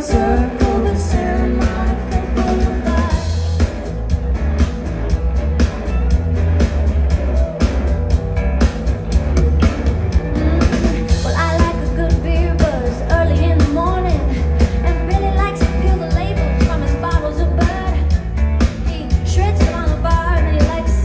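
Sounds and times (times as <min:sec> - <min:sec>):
person singing: 0:00.0 - 0:03.7
live pop-rock band: 0:00.0 - 0:21.0.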